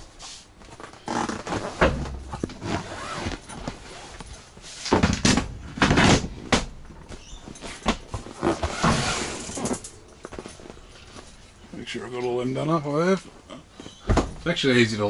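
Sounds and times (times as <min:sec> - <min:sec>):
canvas rustling: 0:00.2 - 0:04.9, 0:07.2 - 0:11.8
tent panels knocking and clunking: 0:01.4 - 0:04.0, 0:04.8 - 0:10.7, 0:13.8 - 0:14.6.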